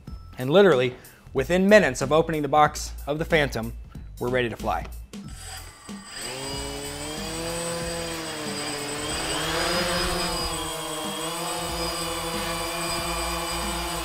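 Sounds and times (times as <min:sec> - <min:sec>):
drone motors buzzing whine: 0:05.5 - 0:14.0.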